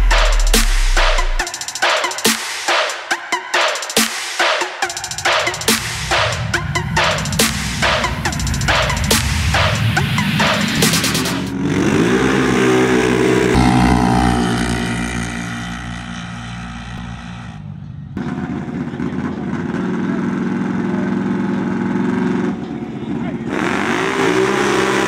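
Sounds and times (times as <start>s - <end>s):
atv engines accelerating: 5.7s - 25.0s
atv engines running steadily: 11.5s - 25.0s.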